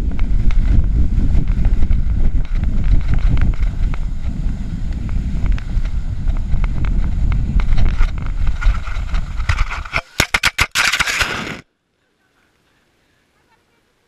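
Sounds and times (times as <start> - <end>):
wind buffeting microphone: 0.0 - 10.0
snow scraping against camera: 0.6 - 10.2, 10.8 - 11.6.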